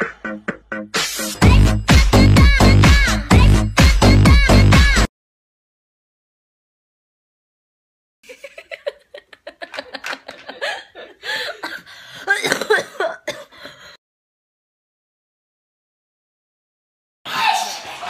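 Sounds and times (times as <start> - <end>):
woman laughing hard: 8.2 - 13.3
woman coughing: 10.6 - 13.6.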